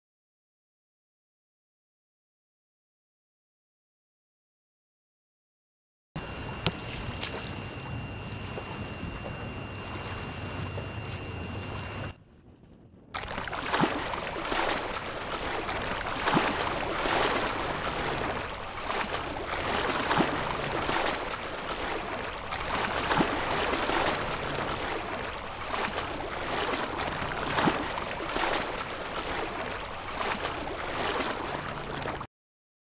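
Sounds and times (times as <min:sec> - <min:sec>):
sea water lapping: 0:06.2 - 0:12.2, 0:13.2 - 0:32.3
water splashes: 0:06.2 - 0:12.2, 0:13.2 - 0:32.3.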